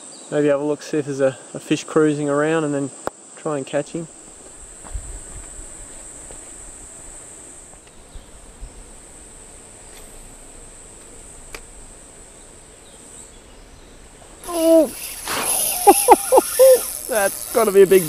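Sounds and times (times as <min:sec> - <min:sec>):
high-pitched insect drone: 0:03.8 - 0:18.0.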